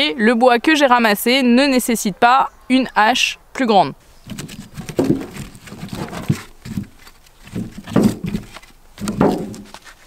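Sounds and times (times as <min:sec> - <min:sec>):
logs clunking in wheelbarrow: 0:04.3 - 0:10.0.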